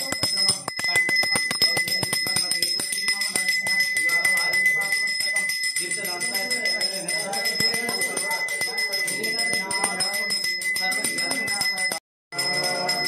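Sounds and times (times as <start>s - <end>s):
bell rung rapidly: 0.0s - 13.0s.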